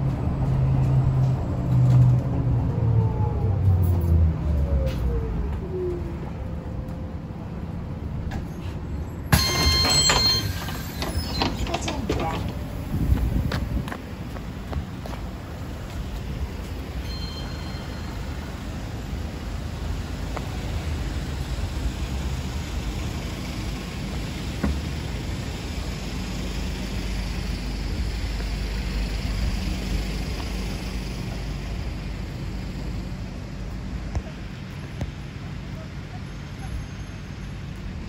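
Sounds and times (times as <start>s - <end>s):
traffic rumble: 0.0s - 38.0s
faint high beep: 17.0s - 18.3s.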